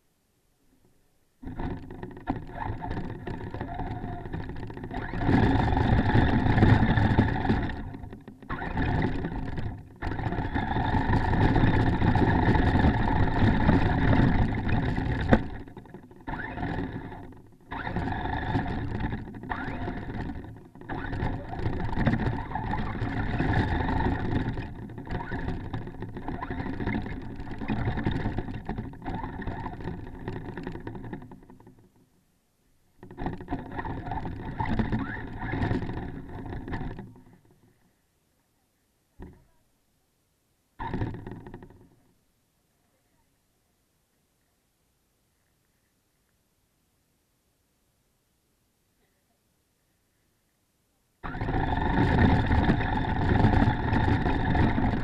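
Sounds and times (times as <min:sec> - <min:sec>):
toy truck motor running: 0:01.4 - 0:31.8, 0:33.0 - 0:37.5, 0:51.2 - 0:55.0.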